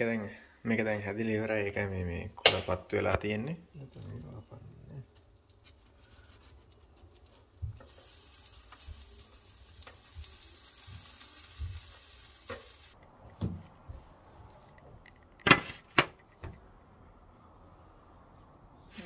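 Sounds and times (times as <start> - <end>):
food sizzling in a frying pan: 7.7 - 13.0.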